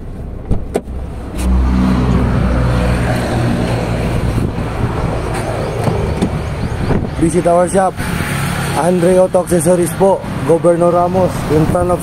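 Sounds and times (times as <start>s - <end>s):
motor vehicle engine running: 0.0s - 9.2s.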